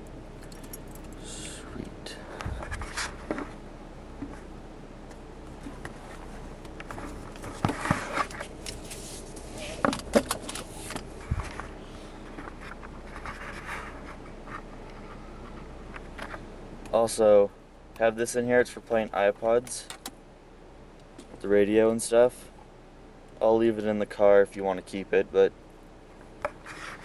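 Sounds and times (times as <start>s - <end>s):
rustling and scraping: 2.3s - 3.6s, 4.2s - 16.4s, 26.2s - 27.0s.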